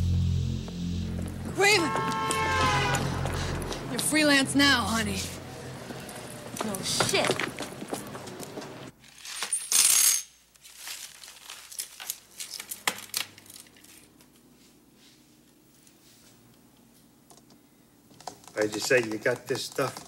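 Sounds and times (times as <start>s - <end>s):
loud rush of noise: 0.0s - 5.9s.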